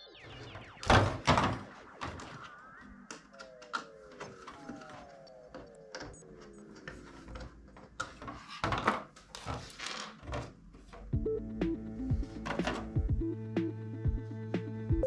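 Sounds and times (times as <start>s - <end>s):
background music: 11.1s - 15.0s.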